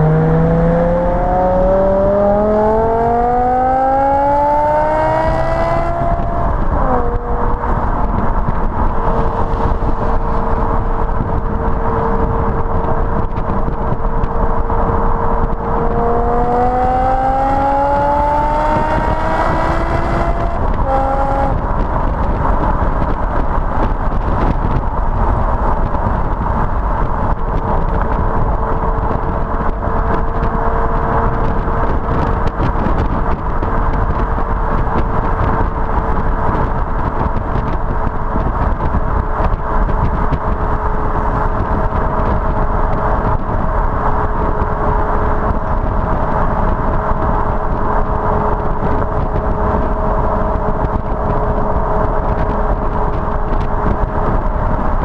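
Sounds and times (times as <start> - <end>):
car exhaust drone: 0.0 - 55.0
tyre and wind noise: 0.0 - 55.0.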